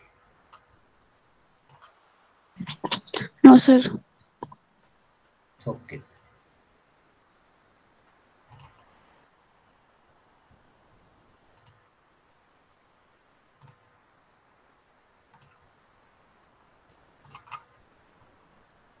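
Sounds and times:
low steady hiss: 0:00.0 - 0:19.0
computer mouse clicks: 0:01.7 - 0:01.9, 0:08.5 - 0:08.9, 0:11.6 - 0:11.8, 0:13.6 - 0:13.9, 0:15.3 - 0:15.6, 0:17.2 - 0:17.7.

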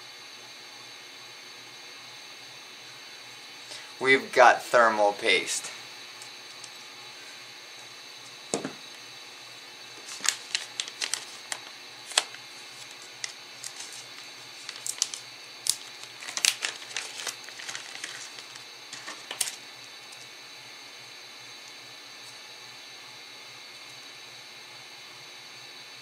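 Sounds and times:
dull knock: 0:08.6 - 0:08.8.

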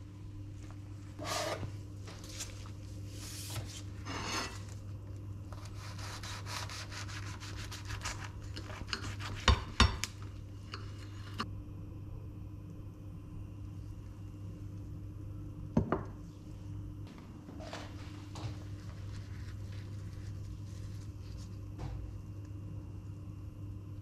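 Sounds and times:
knife sawing through crisp wrap: 0:05.6 - 0:08.4
low hum: 0:10.2 - 0:24.0.

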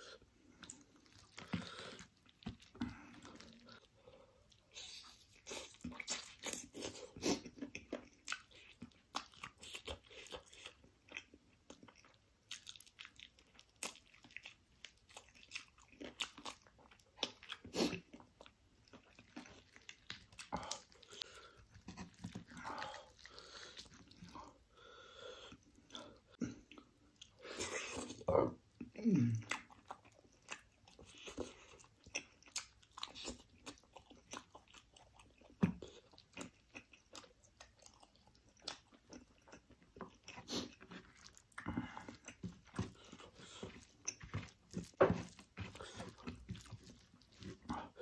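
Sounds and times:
person chewing food: 0:00.0 - 0:48.0
food crunching: 0:00.1 - 0:24.6, 0:29.4 - 0:48.0.

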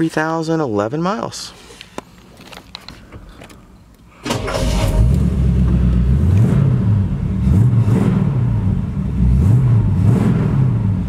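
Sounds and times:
engine starting and revving: 0:04.2 - 0:11.0.

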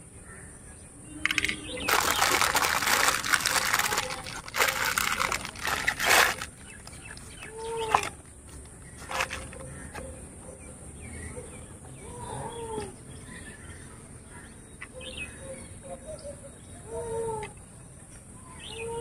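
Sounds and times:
bird calling: 0:01.2 - 0:17.6
plastic bag crinkling: 0:01.8 - 0:09.6.

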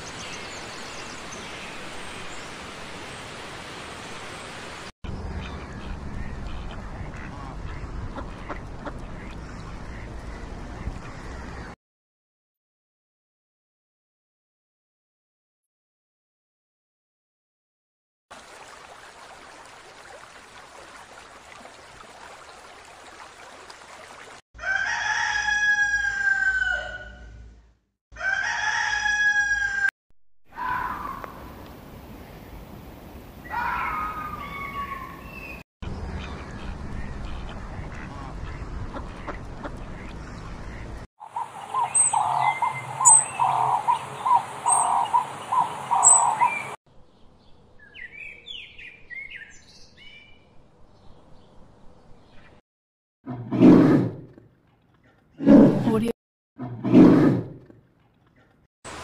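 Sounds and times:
outdoor background noise: 0:00.0 - 0:11.8, 0:30.5 - 0:52.6, 0:53.3 - 0:59.0
ducks quacking: 0:05.4 - 0:11.8, 0:36.2 - 0:46.6.

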